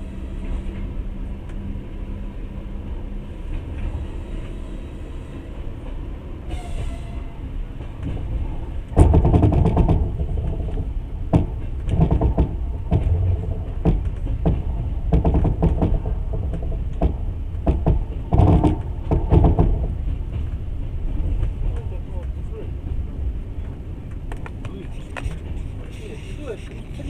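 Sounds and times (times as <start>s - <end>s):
train wheels clacking over rail joints: 7.8s - 23.0s.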